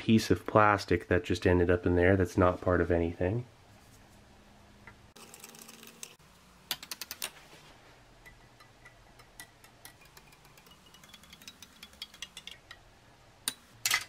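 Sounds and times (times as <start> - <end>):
spoon ticking against glass: 8.2 - 12.7.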